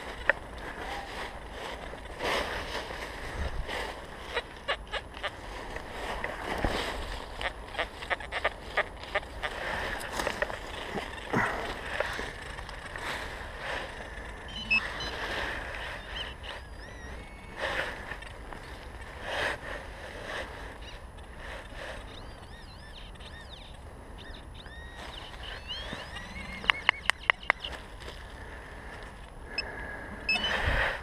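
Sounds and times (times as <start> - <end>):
dry leaves crunching: 0.0 - 20.7
faint high chirps: 14.4 - 17.6, 22.0 - 27.8, 29.5 - 30.7.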